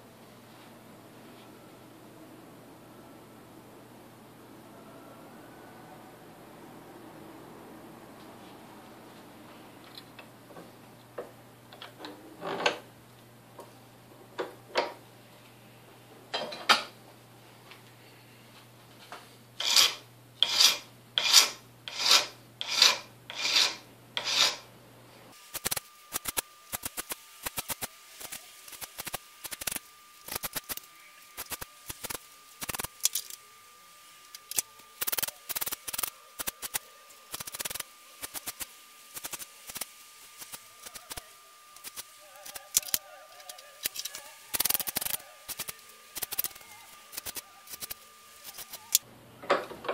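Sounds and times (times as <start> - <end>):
hand file rasping on metal: 19.6 - 24.7.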